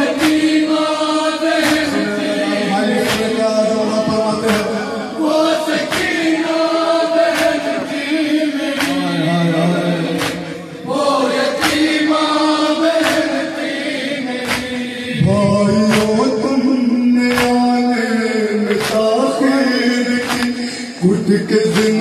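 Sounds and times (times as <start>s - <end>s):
men chanting a lament: 0.0s - 22.0s
hands slapping chests: 0.1s - 0.8s, 1.5s - 2.1s, 3.0s - 3.4s, 4.4s - 4.8s, 5.7s - 6.3s, 7.2s - 8.0s, 8.6s - 9.1s, 10.2s - 10.6s, 11.3s - 12.2s, 12.8s - 13.7s, 14.4s - 15.0s, 15.8s - 16.3s, 17.3s - 17.7s, 18.7s - 19.2s, 20.2s - 20.7s, 21.7s - 22.0s.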